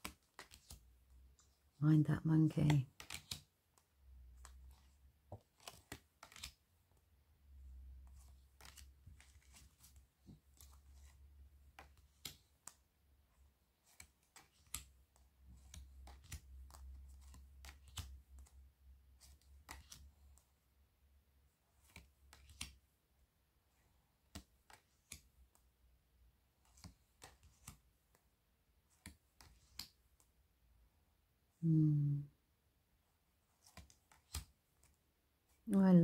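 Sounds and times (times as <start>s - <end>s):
cards flipping off a stack: 0.0s - 0.9s, 2.9s - 3.5s, 4.4s - 6.6s, 8.0s - 12.8s, 13.8s - 15.0s, 15.6s - 18.6s, 19.2s - 20.1s, 21.8s - 22.8s, 24.2s - 25.6s, 26.6s - 27.9s, 28.9s - 30.3s, 33.5s - 35.0s.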